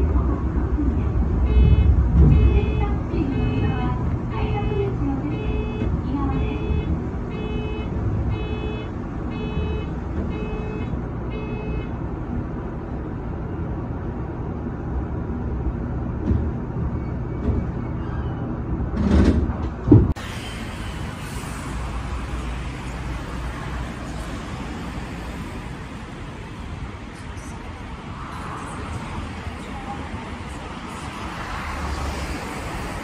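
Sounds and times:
electric train cab rumble: 0.0s - 33.0s
station concourse hum: 0.0s - 33.0s.

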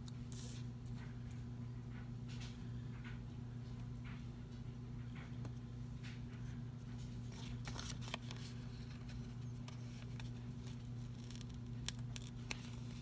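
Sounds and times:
steady low hum: 0.0s - 13.0s
paper rustling: 7.0s - 13.0s.

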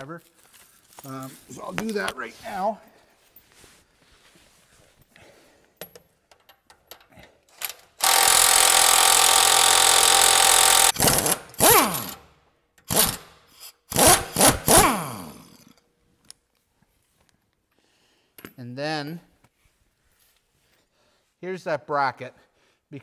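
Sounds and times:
cordless nut driver whirring: 8.0s - 12.2s.

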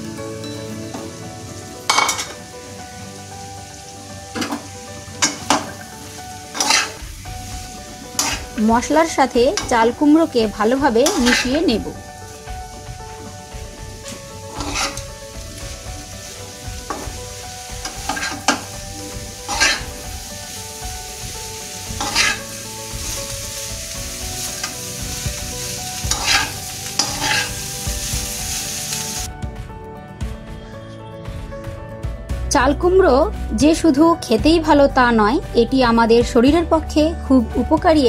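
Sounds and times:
vegetables sizzling in a pan: 0.0s - 29.3s
spatula scraping a pan: 6.6s - 7.0s, 8.1s - 8.6s, 11.0s - 11.7s, 14.5s - 15.1s, 17.8s - 20.1s, 21.8s - 23.4s, 25.6s - 28.6s.

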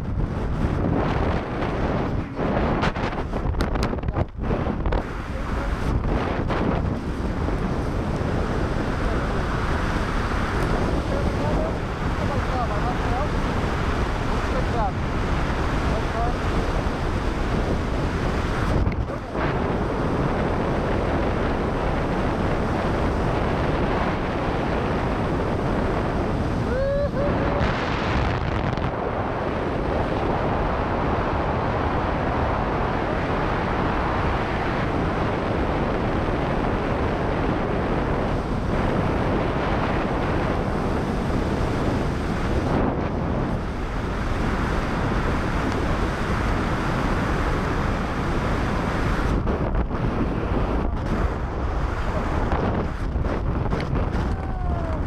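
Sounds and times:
heavy wind on microphone: 0.0s - 55.0s.

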